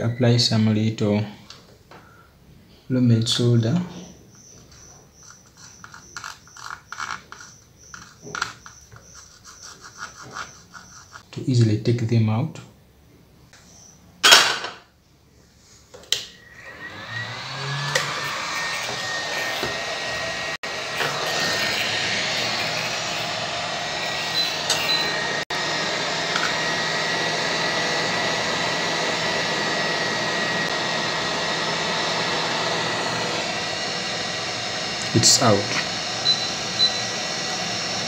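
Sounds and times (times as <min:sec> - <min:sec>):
hot-air gun hissing: 0:16.6 - 0:38.0.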